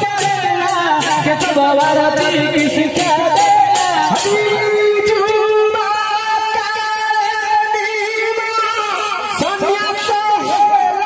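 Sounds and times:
hand cymbals clashing: 0:00.0 - 0:05.2
devotional chanting: 0:00.0 - 0:11.0.

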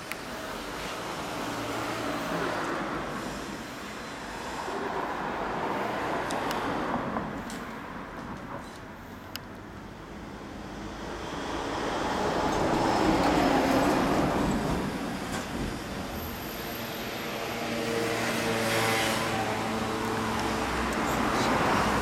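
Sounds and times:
vehicle passing by: 0:17.4 - 0:22.0.

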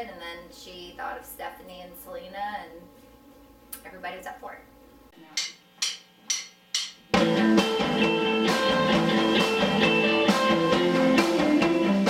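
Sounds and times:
drum kit: 0:05.3 - 0:12.0
bass guitar: 0:07.1 - 0:12.0
electric guitars: 0:07.2 - 0:12.0.

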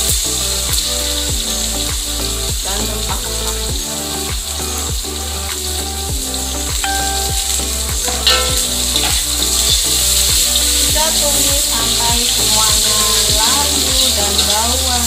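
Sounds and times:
background music with a beat: 0:00.0 - 0:14.7
vegetables sizzling in a wok: 0:00.0 - 0:15.0
metal spatula scraping a pan: 0:08.1 - 0:10.2.

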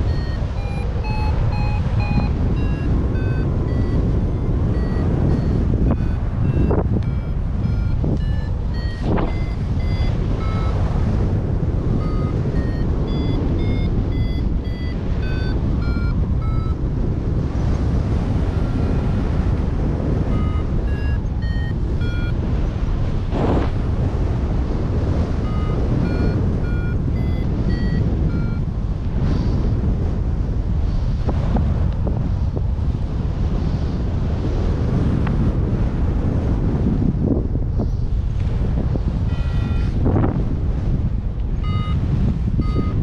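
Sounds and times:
variometer beeping: 0:00.0 - 0:22.8, 0:25.0 - 0:28.8, 0:39.3 - 0:40.1, 0:41.4 - 0:43.0
wind rushing over microphone: 0:00.0 - 0:43.0.

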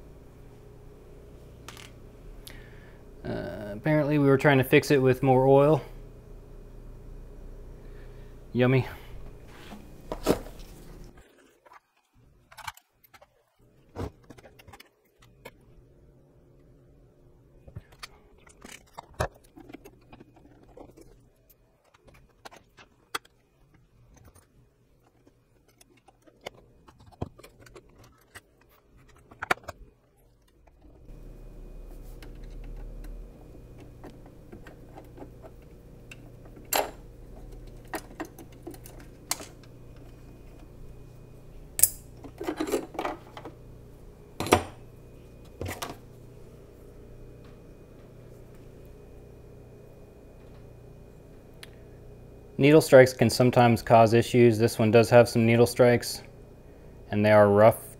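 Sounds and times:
steady low hum: 0:00.0 - 0:57.9
metal parts clicking and clinking: 0:41.8 - 0:43.5.

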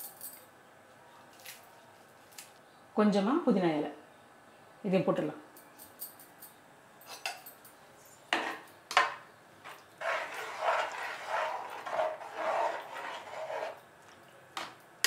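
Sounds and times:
spoon stirring thick gravy: 0:09.6 - 0:14.8.

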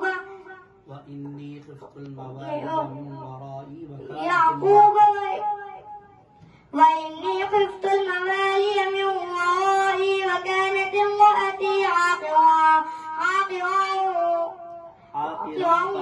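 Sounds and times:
boy reciting melodically: 0:00.0 - 0:16.0.

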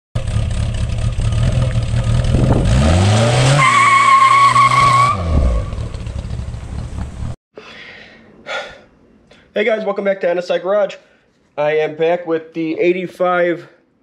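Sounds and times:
sports car engine revving: 0:00.2 - 0:07.4.

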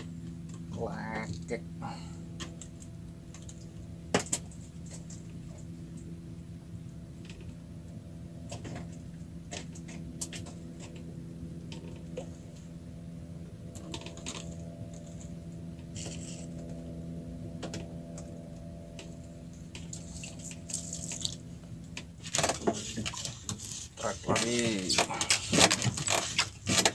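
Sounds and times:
steady low hum: 0:00.0 - 0:26.9
water dripping and lapping: 0:19.7 - 0:26.9.

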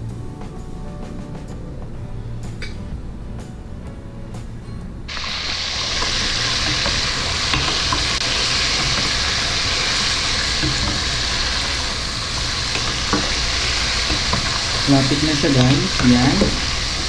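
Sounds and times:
chicken deep-frying in oil: 0:05.1 - 0:17.0
spoon stirring in pot: 0:06.0 - 0:17.0.

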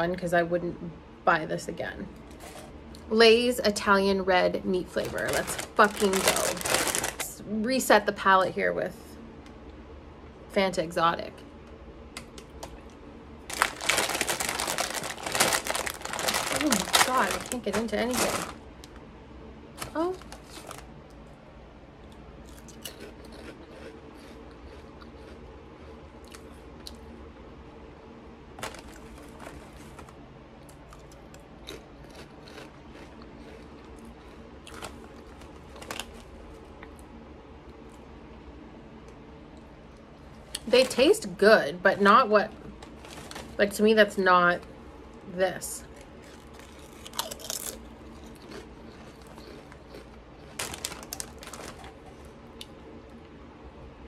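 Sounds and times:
foil chip bag crinkling: 0:04.8 - 0:07.4, 0:13.5 - 0:19.0, 0:19.8 - 0:20.9, 0:28.6 - 0:30.2, 0:32.4 - 0:36.6, 0:40.6 - 0:41.3, 0:42.7 - 0:43.8, 0:45.8 - 0:52.3
potato crisps being chewed: 0:04.9 - 0:07.4, 0:12.2 - 0:19.0, 0:19.8 - 0:21.2, 0:22.0 - 0:27.0, 0:28.6 - 0:37.1, 0:42.7 - 0:43.6, 0:45.8 - 0:52.8.

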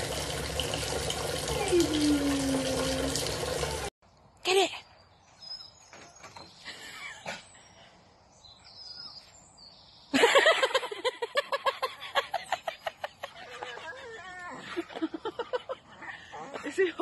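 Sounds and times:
faint bird chirps: 0:04.6 - 0:10.1.

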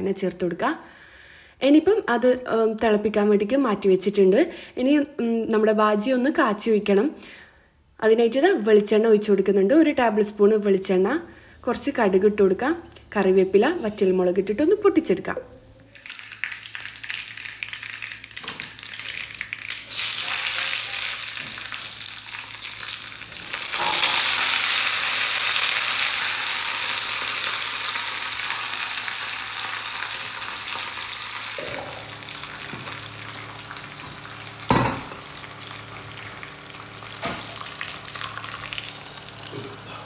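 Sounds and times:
seeds sizzling in hot oil: 0:15.9 - 0:40.0.

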